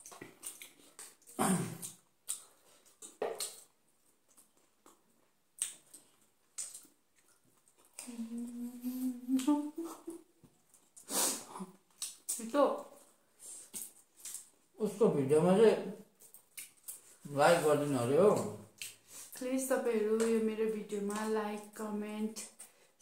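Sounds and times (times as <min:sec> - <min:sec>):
chewing: 0:00.0 - 0:08.6, 0:10.4 - 0:14.6, 0:16.2 - 0:17.2
person humming mmm: 0:08.0 - 0:10.2.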